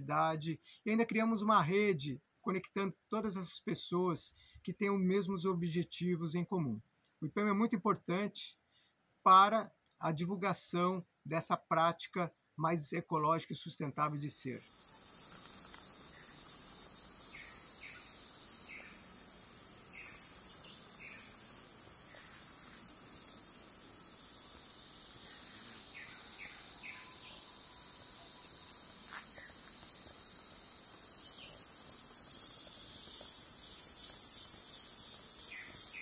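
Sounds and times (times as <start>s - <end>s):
high-pitched insect chorus: 14.1s - 36.0s
short bird chirps: 32.8s - 36.0s.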